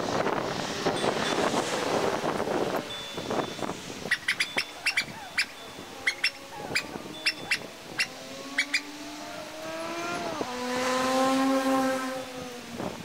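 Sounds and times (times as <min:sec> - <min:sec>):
passing vehicle engine: 0:00.0 - 0:13.0
short sharp bird calls: 0:04.1 - 0:08.9.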